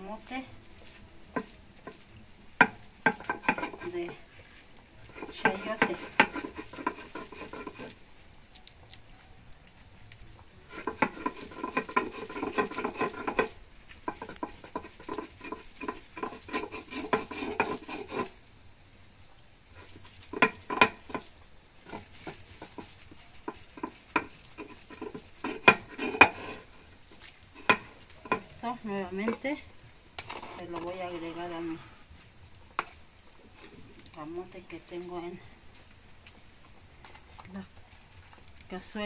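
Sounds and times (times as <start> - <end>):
stone grinding on stone: 2.6 - 4.2, 5.0 - 8.0, 10.7 - 18.4, 19.8 - 26.9, 30.1 - 31.5.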